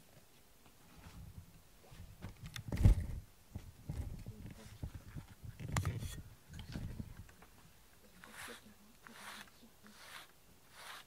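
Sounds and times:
microphone handling rubbing: 0:01.0 - 0:07.6.

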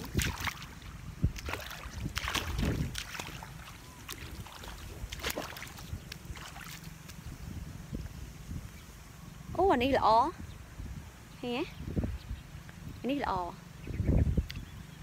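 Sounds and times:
muddy water splashing: 0:00.0 - 0:07.5.

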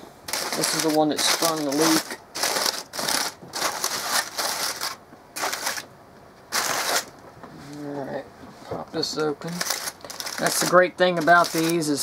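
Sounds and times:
aluminium foil crinkling: 0:00.3 - 0:05.9, 0:06.5 - 0:07.1, 0:09.1 - 0:12.0.

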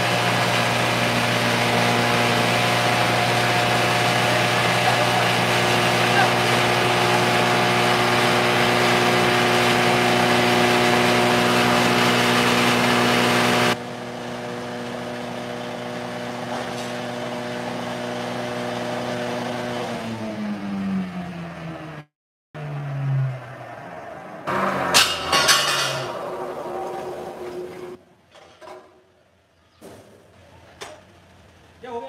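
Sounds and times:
grinder machine humming: 0:00.0 - 0:20.6
loud rushing grind: 0:24.5 - 0:28.0.

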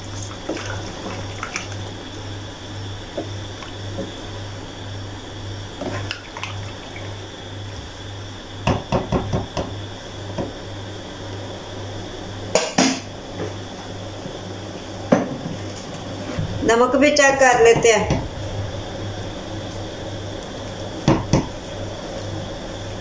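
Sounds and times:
low hum: 0:16.4 - 0:23.0.

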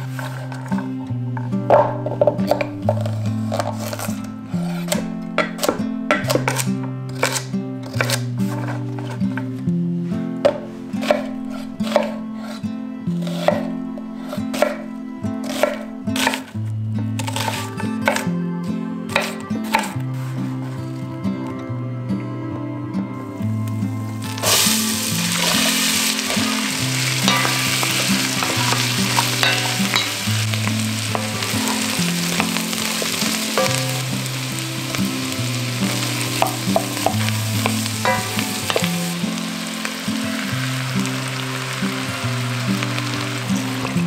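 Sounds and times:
wooden spoon scraping and tapping: 0:00.0 - 0:09.6, 0:10.4 - 0:12.6, 0:13.2 - 0:16.5, 0:17.2 - 0:18.2, 0:19.1 - 0:20.4, 0:24.2 - 0:39.4
vegetables sizzling in hot oil: 0:02.4 - 0:05.6, 0:24.2 - 0:44.0.

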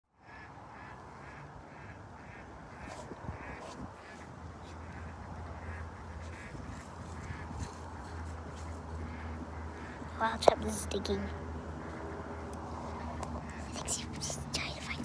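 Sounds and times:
scratching in dirt: 0:02.8 - 0:05.1, 0:06.1 - 0:10.0.

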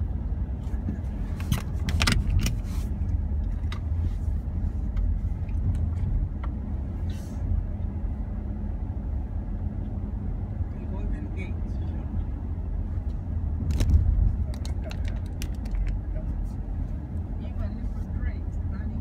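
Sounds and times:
road and engine rumble: 0:00.0 - 0:19.0
sharp clicks or rattles: 0:13.6 - 0:16.0.

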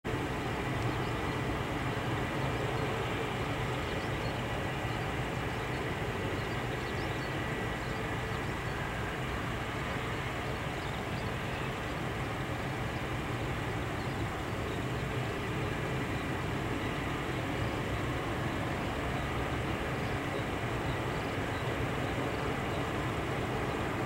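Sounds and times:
distant turboprop engines droning: 0:00.0 - 0:24.0
faint high whine: 0:00.1 - 0:24.0.

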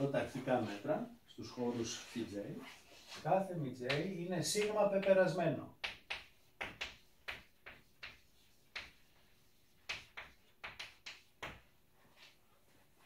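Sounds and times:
chalk tapping on blackboard: 0:03.8 - 0:12.3.

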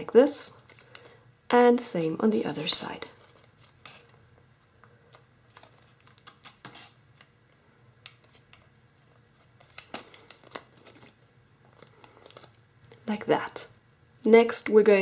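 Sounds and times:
foil paper crinkling: 0:09.4 - 0:12.6.

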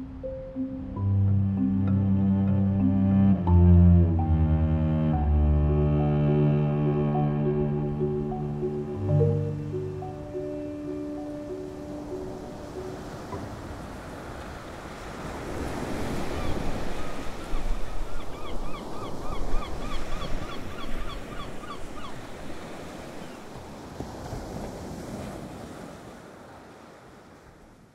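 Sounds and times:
ocean surf breaking: 0:06.0 - 0:27.6.

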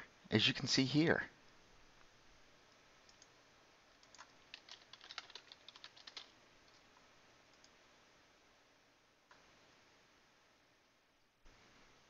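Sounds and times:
keyboard typing: 0:03.1 - 0:03.3, 0:03.9 - 0:06.8.

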